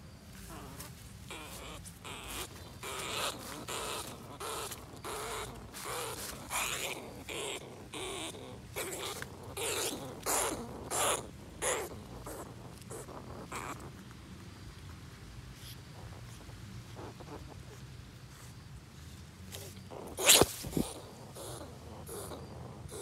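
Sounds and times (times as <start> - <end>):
rat squeaking: 1.3 - 13.9, 19.6 - 23.0.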